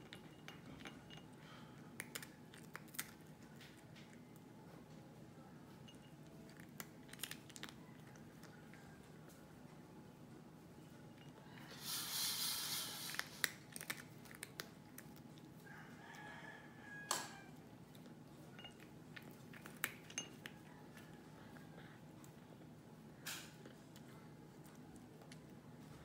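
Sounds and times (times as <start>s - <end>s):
cat eating from a dish: 0.0s - 4.9s, 5.7s - 9.3s, 11.0s - 15.6s, 17.9s - 22.8s
burst of hissing noise: 11.8s - 13.2s.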